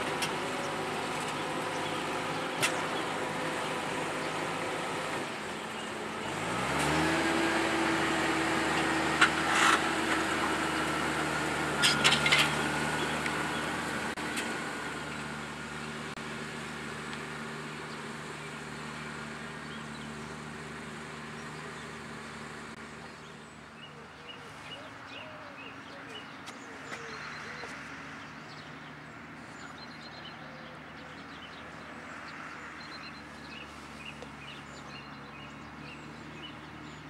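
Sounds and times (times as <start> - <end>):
tractor engine under load: 0.0 - 37.0
short metal clanks: 11.8 - 12.6.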